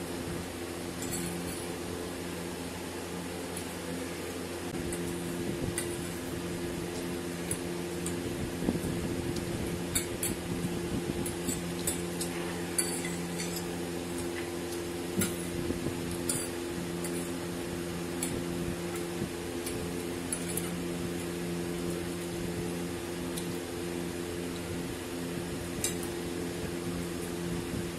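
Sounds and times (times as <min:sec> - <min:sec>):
forks clinking on plates: 0:11.2 - 0:13.8.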